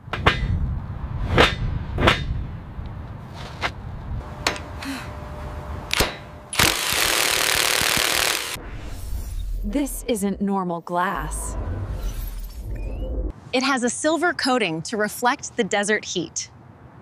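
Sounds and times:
heavy tool banging on steel bolts: 0.0 - 0.6
low rumble: 8.6 - 13.3.

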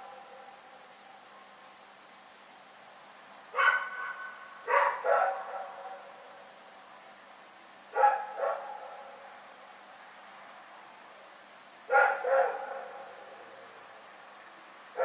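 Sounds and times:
dog barking: 3.5 - 6.2, 7.9 - 9.2, 11.9 - 13.3.

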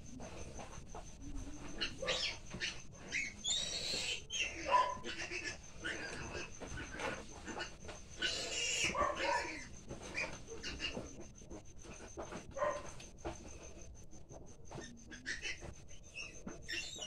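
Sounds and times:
pigs squealing and grunting: 1.6 - 11.3, 14.7 - 17.0.

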